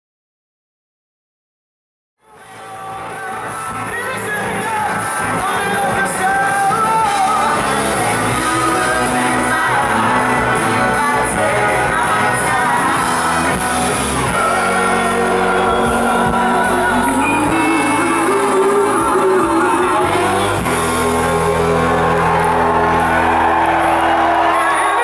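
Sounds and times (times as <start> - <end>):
rock band playing: 2.3 - 25.0
woman singing: 2.4 - 13.6, 14.2 - 22.2.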